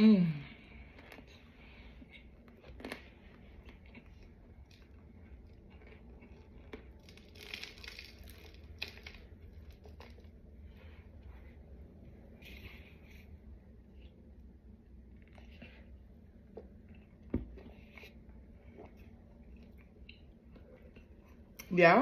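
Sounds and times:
crunching and chewing: 0.6s - 11.5s, 12.4s - 21.6s
small crackles: 2.6s - 10.4s.

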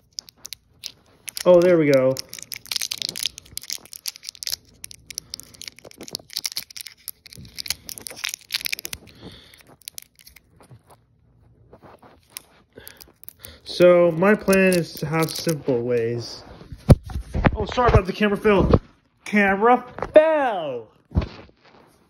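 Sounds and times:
plastic wrapper tearing and crinkling: 0.0s - 11.0s, 12.0s - 15.7s.

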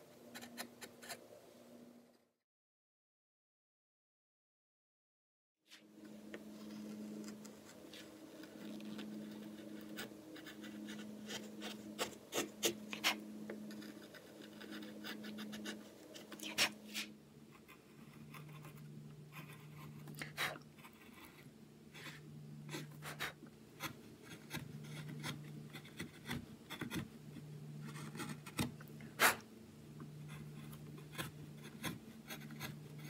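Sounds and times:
low steady hum: 0.0s - 2.4s, 5.7s - 33.0s
gouge scraping wood: 6.3s - 29.4s, 30.2s - 33.0s.

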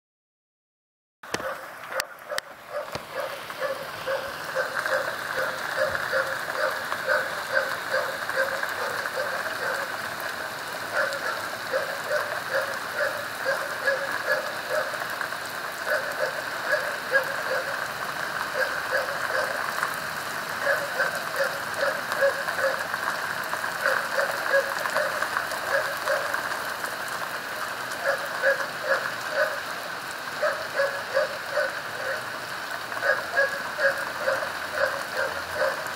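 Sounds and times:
rain on pavement and roofs: 1.2s - 35.9s.

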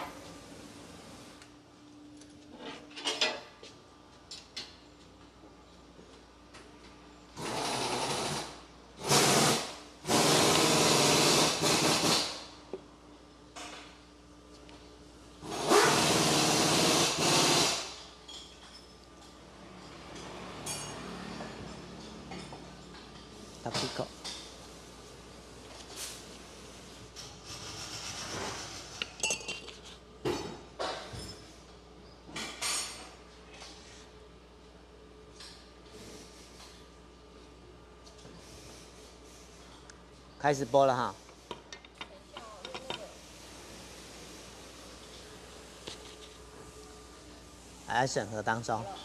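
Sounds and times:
pneumatic tool bursts: 7.4s - 12.6s, 15.4s - 18.1s.

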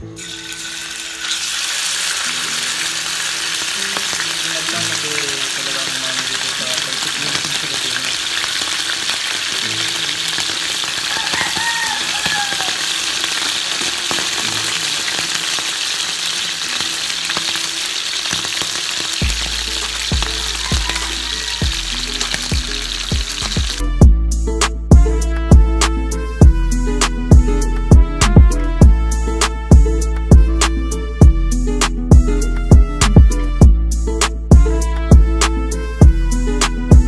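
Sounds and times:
fish sizzling in hot oil: 0.2s - 24.0s
music with low beat: 19.2s - 21.0s, 21.6s - 37.0s.

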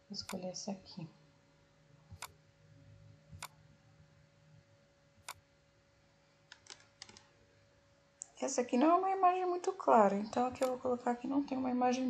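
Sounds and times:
faint steady hum: 0.0s - 12.0s
computer mouse clicks: 0.2s - 0.4s, 2.1s - 2.4s, 3.3s - 3.6s, 5.2s - 5.4s, 6.5s - 7.3s, 10.5s - 10.8s.

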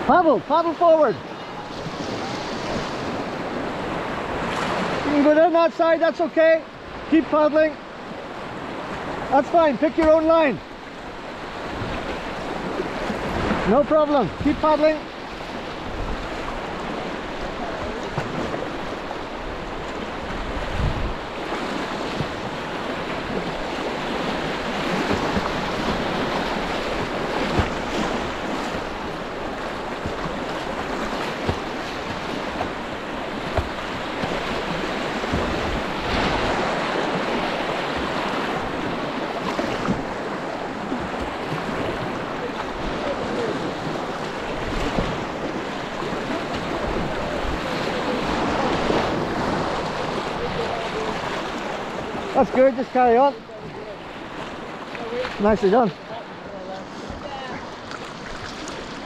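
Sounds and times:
river rapids rushing: 0.0s - 59.0s
paddle strokes in water: 0.8s - 5.3s, 6.7s - 59.0s
wind buffeting microphone: 15.8s - 39.2s.

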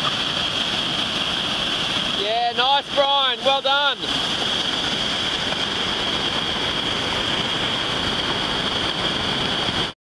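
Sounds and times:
whitewater rapids rushing: 0.0s - 10.0s.

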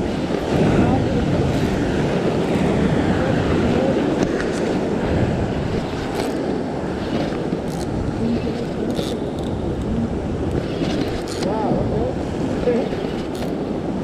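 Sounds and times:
surf breaking against rocks: 0.0s - 14.0s
wind buffeting microphone: 0.0s - 14.0s.

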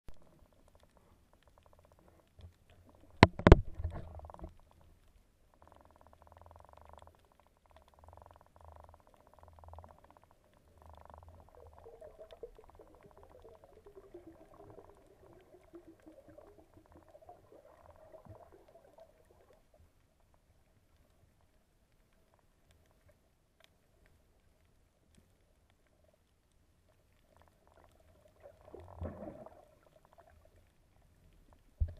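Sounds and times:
faint underwater rumbling: 0.1s - 31.9s
sharp underwater knocks: 3.2s - 4.0s.

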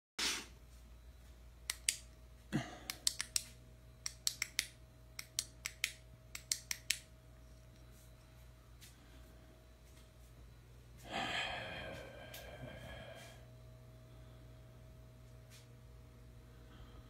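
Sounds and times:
sharp clicks: 1.7s - 2.1s, 2.9s - 7.1s.

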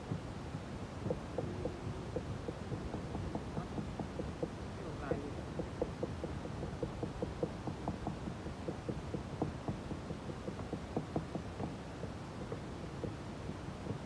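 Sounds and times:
steady low hum: 0.0s - 14.0s
wooden stick tapping fiberglass: 1.0s - 11.8s.

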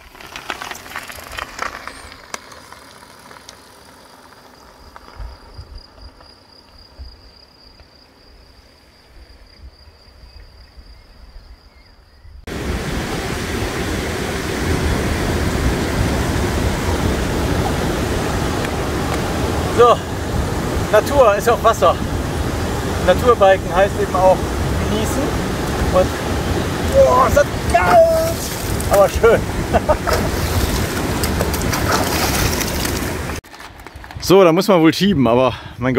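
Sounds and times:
river rushing over stones: 12.5s - 33.4s.

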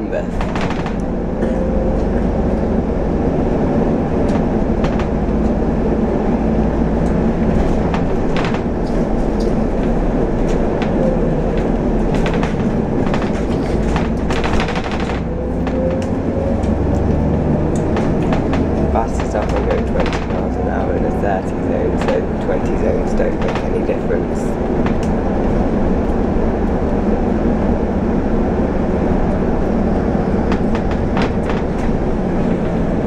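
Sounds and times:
bus engine and road rumble: 0.0s - 33.0s
bodywork rattles: 0.1s - 33.0s.

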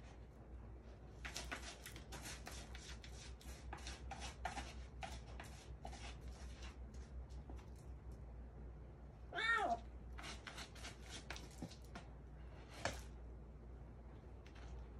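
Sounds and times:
kitten scratching in cat litter: 0.9s - 8.1s, 9.7s - 13.2s.

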